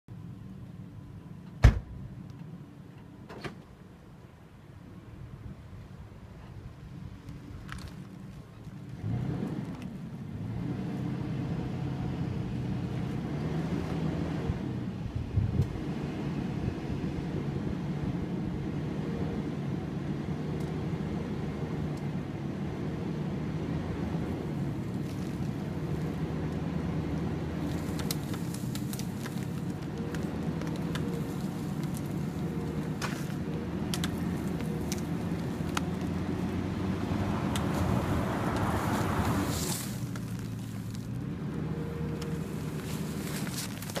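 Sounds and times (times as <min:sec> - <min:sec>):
truck engine running: 0:17.3 - 0:44.0
hide tearing with crackling pops: 0:24.8 - 0:36.6, 0:37.4 - 0:44.0.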